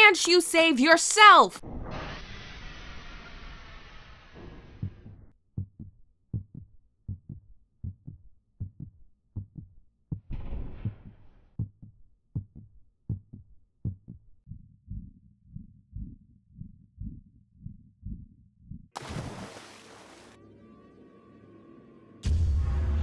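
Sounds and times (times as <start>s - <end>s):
heartbeat thumps: 4.8s - 18.9s.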